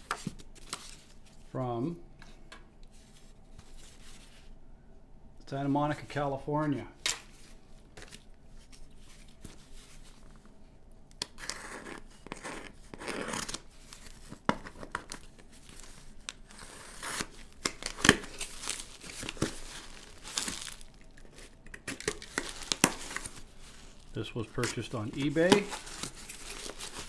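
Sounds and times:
tape and cardboard ripping: 11.2 - 23.5, 24.6 - 27.0
knife slitting packing tape: 11.4 - 13.7.

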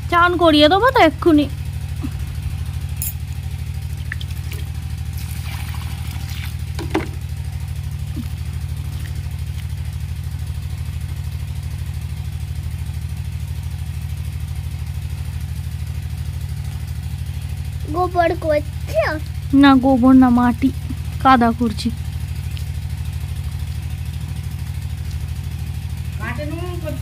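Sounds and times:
pump engine droning: 0.0 - 27.0.

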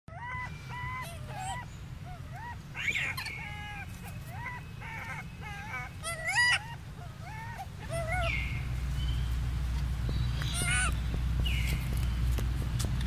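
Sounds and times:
harsh monkey call: 0.1 - 8.8, 10.4 - 11.8
monkey coo calls: 0.1 - 8.8, 10.4 - 11.2.

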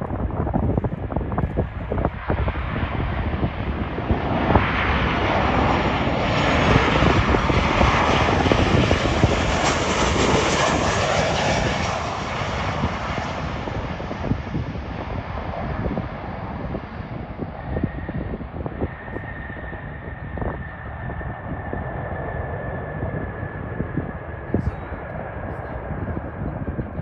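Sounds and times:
airliner engines roaring: 0.0 - 27.0.

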